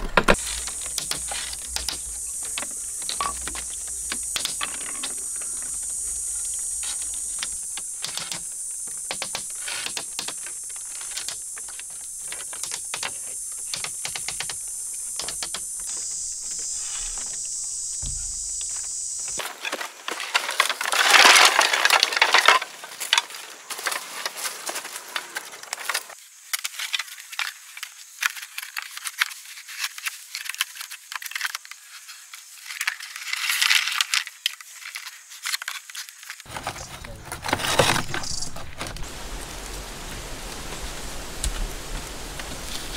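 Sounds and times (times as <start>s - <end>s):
scraping and rustling: 0.0s - 26.2s, 31.8s - 39.2s
bamboo poles clacking: 0.0s - 31.8s, 32.7s - 39.1s.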